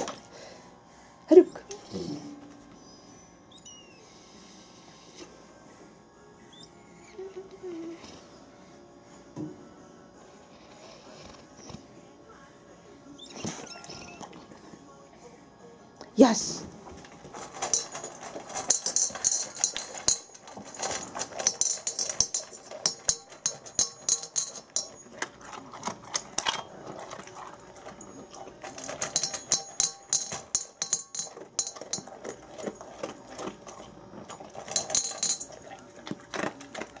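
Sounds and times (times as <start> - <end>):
dog crunching food: 16.8 - 37.0
kibble rattling in metal bowl: 16.8 - 37.0.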